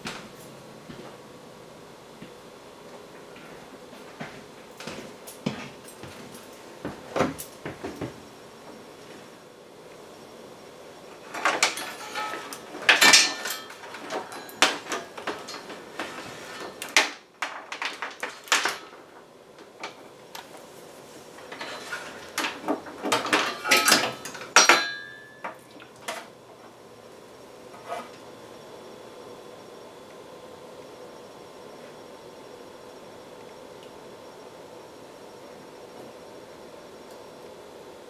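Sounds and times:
small tools clattering: 0:11.2 - 0:19.0, 0:21.4 - 0:26.3.

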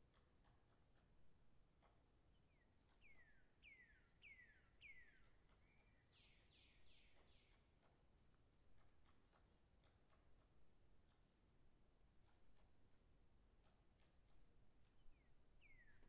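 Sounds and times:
faint bird song: 0:00.0 - 0:16.0.

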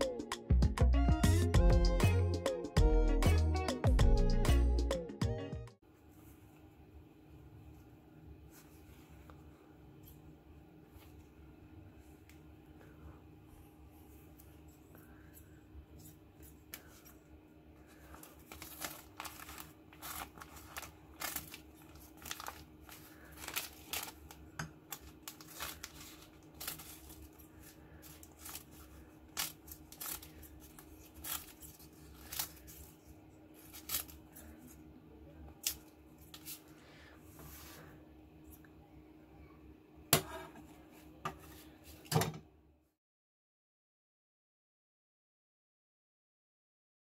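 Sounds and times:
paper rustling: 0:17.9 - 0:34.8, 0:35.6 - 0:36.8
scissors snipping paper: 0:18.2 - 0:33.0, 0:33.6 - 0:34.5.

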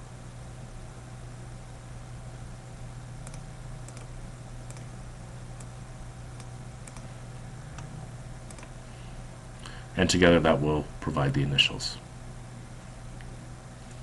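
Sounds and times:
low electrical hum: 0:00.0 - 0:14.0
mouse and keyboard clicks: 0:08.5 - 0:08.7.

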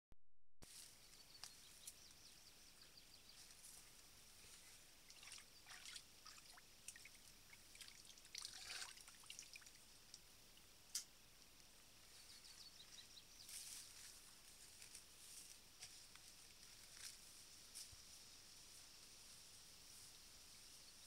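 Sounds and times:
water splashing and trickling: 0:03.9 - 0:11.0.

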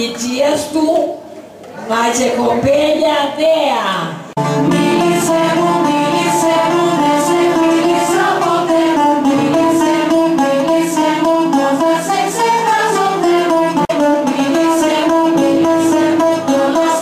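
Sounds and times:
violin melody: 0:04.4 - 0:17.0
lute strumming rhythm: 0:04.5 - 0:17.0.

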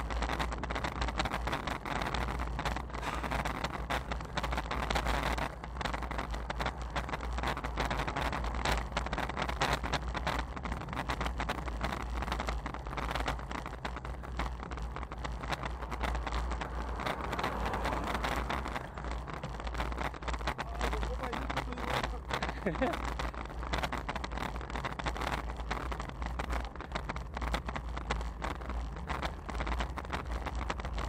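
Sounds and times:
wind rumbling on microphone: 0:00.0 - 0:31.0.

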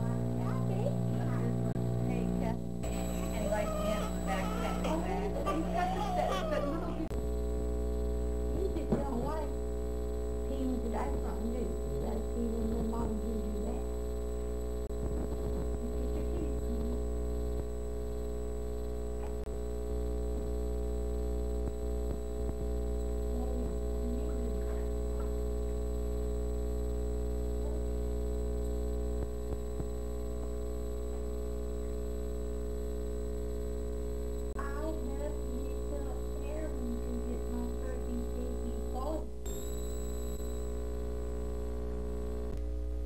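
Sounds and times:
electrical mains hum: 0:00.0 - 0:43.0
thin high whine: 0:00.0 - 0:43.0.

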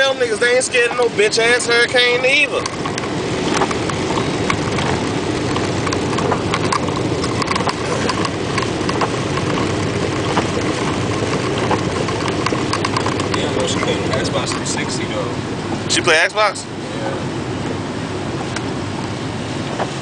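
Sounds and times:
wet road noise: 0:00.0 - 0:20.0
sharp ticks: 0:02.5 - 0:14.9.

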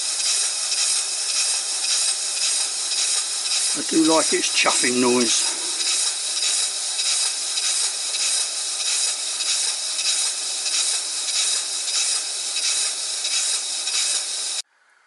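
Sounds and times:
steady hiss: 0:00.0 - 0:14.6
steam engine exhaust chuffing: 0:00.0 - 0:14.6.

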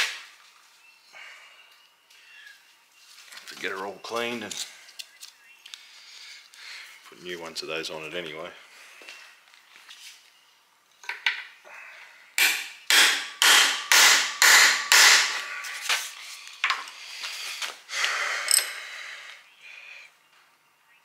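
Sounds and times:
sharp metal strikes: 0:12.4 - 0:15.4.

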